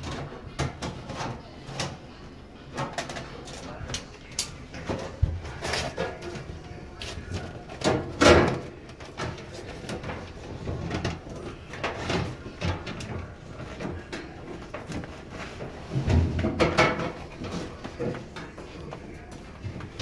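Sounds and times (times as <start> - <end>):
knocks and scrapes: 4.7 - 20.0.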